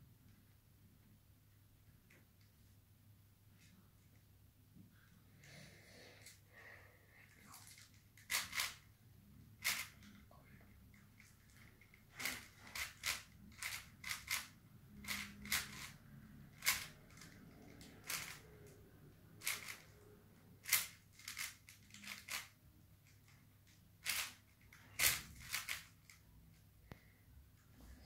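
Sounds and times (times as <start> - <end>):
puzzle cube layers clicking: 8.3 - 8.8, 9.6 - 10.0, 12.3 - 16.0, 16.6 - 18.4, 19.4 - 19.9, 20.6 - 22.5, 25.0 - 26.2.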